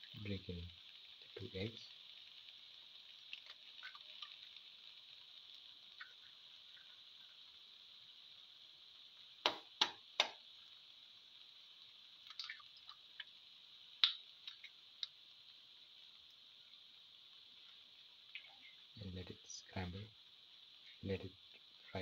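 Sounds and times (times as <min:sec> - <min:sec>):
eggs sizzling in oil: 0:00.0 - 0:22.0
oil pops and crackles: 0:03.1 - 0:04.9, 0:05.6 - 0:07.0, 0:09.4 - 0:10.5, 0:12.2 - 0:15.3.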